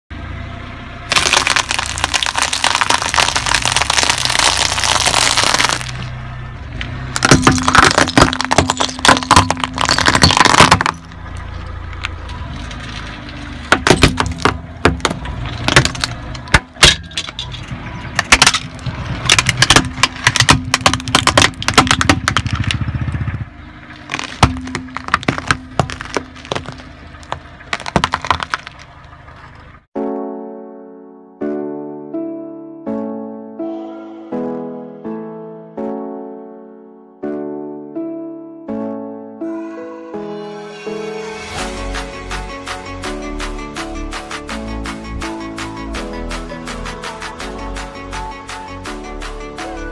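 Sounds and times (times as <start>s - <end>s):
peanut shells being crushed: 1.1s - 6.0s
glass bottle cracking and breaking: 1.1s - 6.1s, 7.2s - 11.2s, 13.7s - 17.6s, 18.2s - 22.8s, 24.0s - 28.9s
sharp cracks and snaps: 1.1s - 6.1s
tyre rolling rumble: 7.2s - 29.8s.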